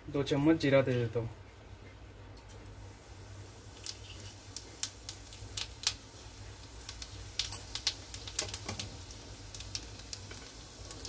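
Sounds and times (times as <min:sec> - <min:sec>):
seeds crackling in hot oil: 0:02.3 - 0:11.0.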